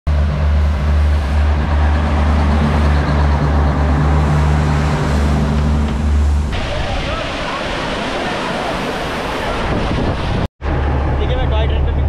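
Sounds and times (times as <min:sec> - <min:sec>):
vehicle engine humming: 0:00.1 - 0:06.6, 0:10.6 - 0:12.0
road noise: 0:00.1 - 0:12.0.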